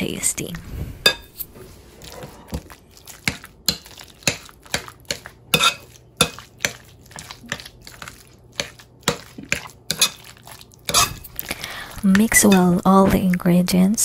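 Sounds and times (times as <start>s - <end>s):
metal spoon clinking on plate: 5.6s - 6.4s, 10.9s - 11.2s.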